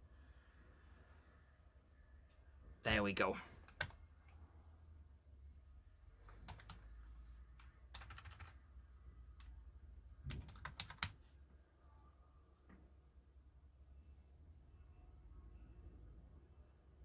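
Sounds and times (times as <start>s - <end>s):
keyboard keystrokes: 7.9s - 8.5s, 10.3s - 11.2s.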